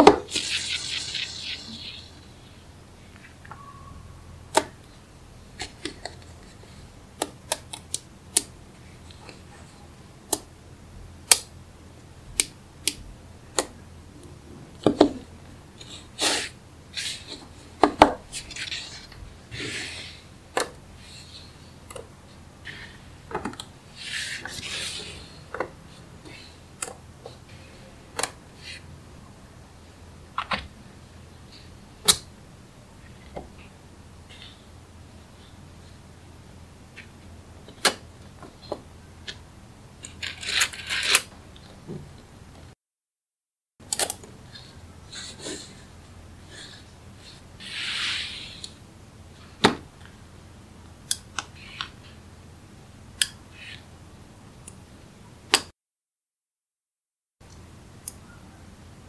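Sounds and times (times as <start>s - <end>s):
magnetic balls scraping: 0.3s - 2.6s.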